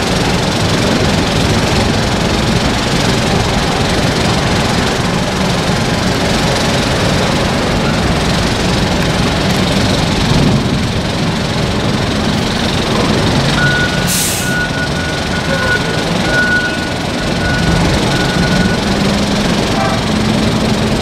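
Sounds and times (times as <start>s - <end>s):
heavy diesel engines running: 0.0s - 21.0s
reversing alarm beeping: 7.7s - 8.3s, 13.3s - 20.4s
air hiss: 14.0s - 14.6s.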